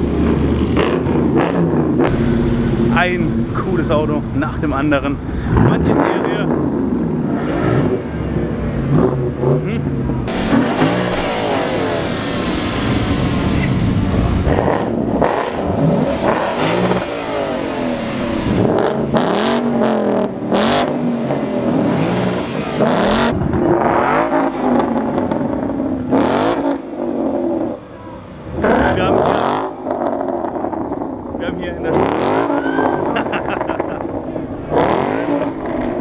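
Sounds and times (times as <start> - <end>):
cars accelerating past: 4.8 - 36.0.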